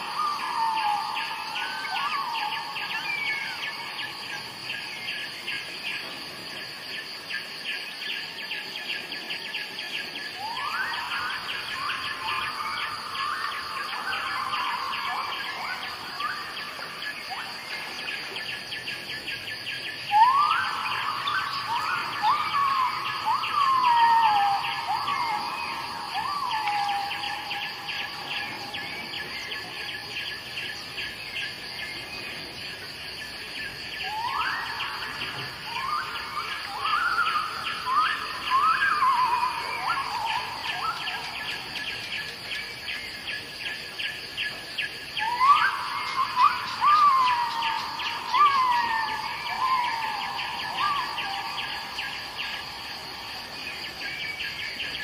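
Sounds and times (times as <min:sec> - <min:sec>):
insect chirping: 0:00.0 - 0:55.0
songbird whistling: 0:34.0 - 0:42.0, 0:45.2 - 0:52.7.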